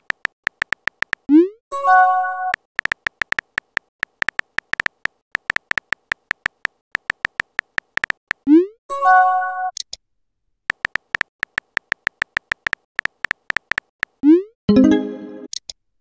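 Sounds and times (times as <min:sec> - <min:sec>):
phone keyboard clicks: 0:00.0 - 0:01.3, 0:02.5 - 0:08.4, 0:10.7 - 0:14.2.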